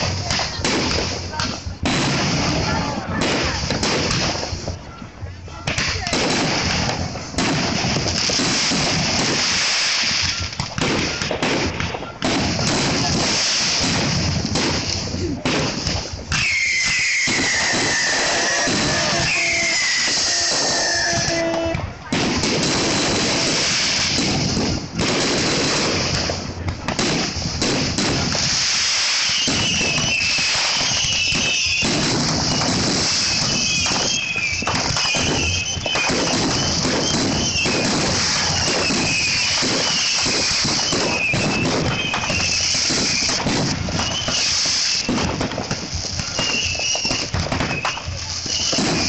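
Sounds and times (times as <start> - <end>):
fireworks bangs and crackling: 0.0 - 49.0.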